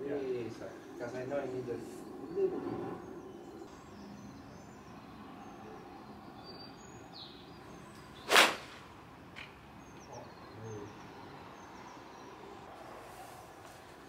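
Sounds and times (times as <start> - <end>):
golf club hitting ball: 8.3 - 8.9.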